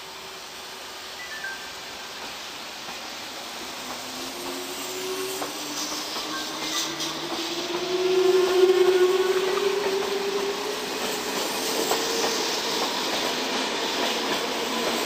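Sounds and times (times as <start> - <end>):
train approaching: 0.0 - 15.0.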